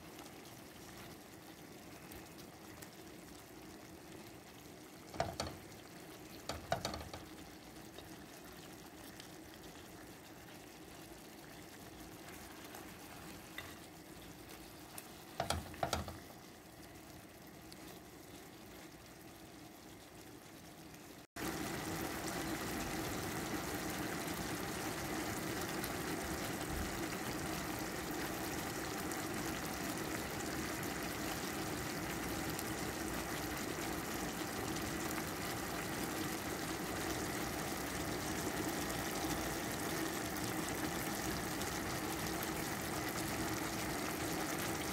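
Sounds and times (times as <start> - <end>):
chicken frying in oil: 0.0 - 44.9.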